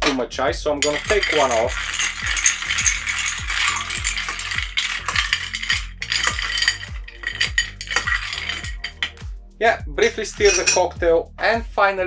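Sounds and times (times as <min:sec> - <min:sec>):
background music beat: 0:00.0 - 0:12.0
ice clinking in glass: 0:00.8 - 0:09.2, 0:10.4 - 0:10.8.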